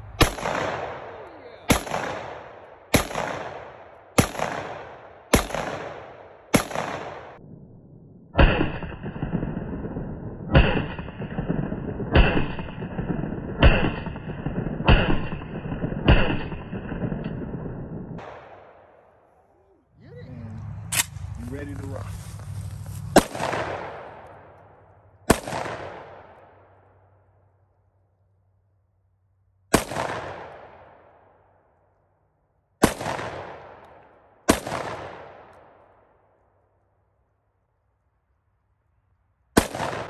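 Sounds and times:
shotgun blasts with ringing echo: 0.0s - 19.2s, 23.1s - 27.4s, 29.7s - 31.7s, 32.8s - 36.5s, 39.6s - 40.0s.

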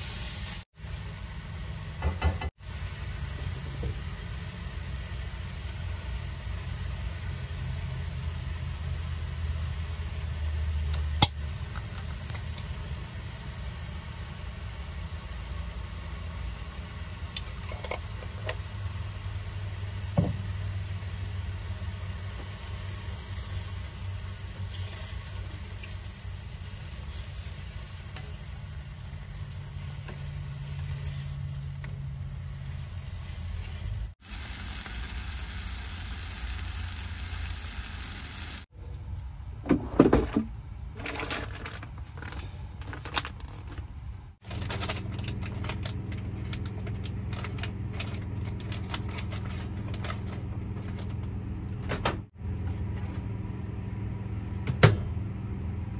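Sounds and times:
mushrooms sizzling in a frying pan: 0.0s - 0.7s, 18.6s - 38.7s
low hum: 34.2s - 38.7s.

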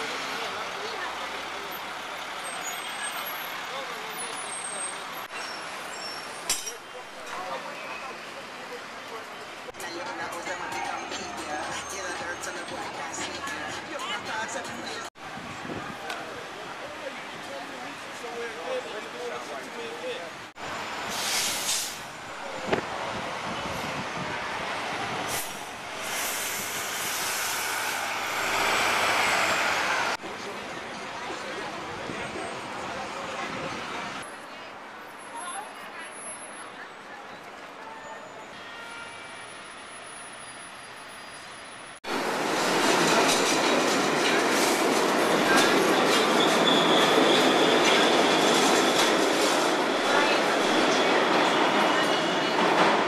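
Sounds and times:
high wheel squeal: 1.7s - 7.0s, 25.4s - 30.2s, 37.9s - 42.0s, 45.5s - 49.1s
bus driving past: 20.6s - 34.3s
short hisses: 21.1s - 22.1s
subway train wheels clattering: 42.1s - 53.0s.

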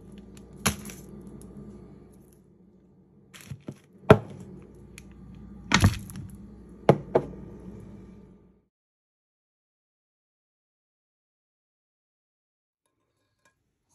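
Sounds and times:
low steady hum: 0.0s - 8.7s
kitchen items knocking on countertop: 4.1s - 4.4s, 6.9s - 7.4s.

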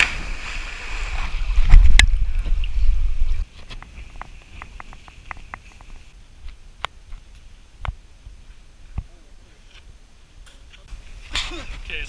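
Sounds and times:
water splashing and churning: 0.0s - 6.1s.

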